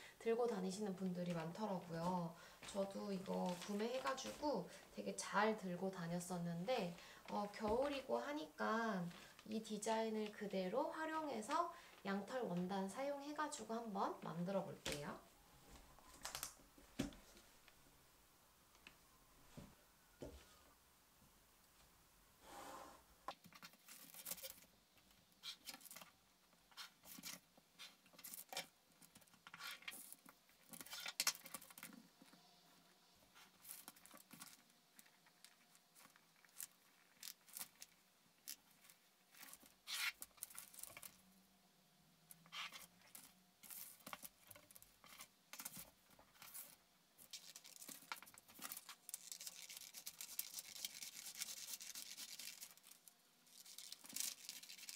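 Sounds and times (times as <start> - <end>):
paper rustling: 3.2 - 4.5, 15.7 - 17.4, 42.5 - 54.9.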